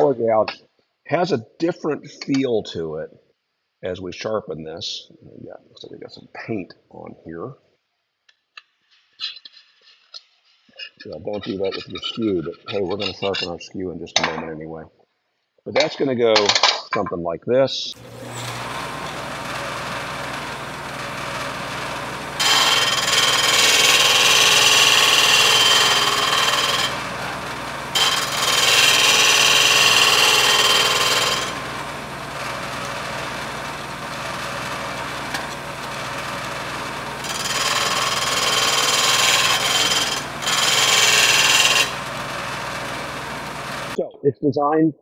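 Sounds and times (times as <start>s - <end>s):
grinding on sanding disc: 18.0s - 44.0s
machine humming: 18.0s - 44.0s.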